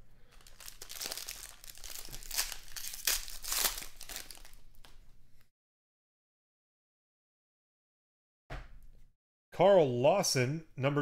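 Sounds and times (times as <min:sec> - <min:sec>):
foil wrapper crinkling and tearing: 0:00.3 - 0:05.0.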